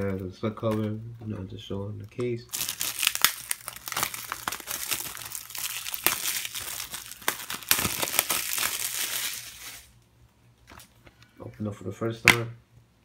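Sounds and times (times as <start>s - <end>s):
plastic wrap crinkling: 2.4s - 10.0s.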